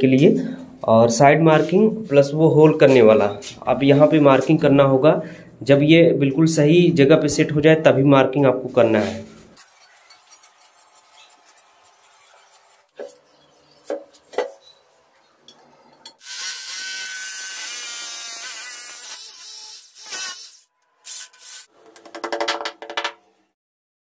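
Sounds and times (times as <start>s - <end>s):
electric drill boring into tile: 16.2s - 21.7s.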